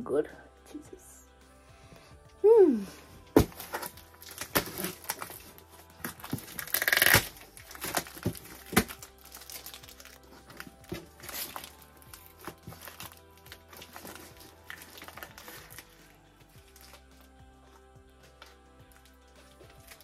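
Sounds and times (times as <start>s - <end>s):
background music: 0.0s - 20.0s
packaging crinkling and tearing: 3.4s - 17.1s.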